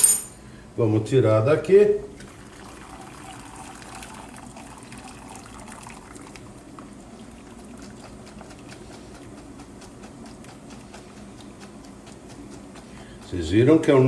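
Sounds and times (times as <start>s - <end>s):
water trickling and dripping: 2.3s - 6.5s.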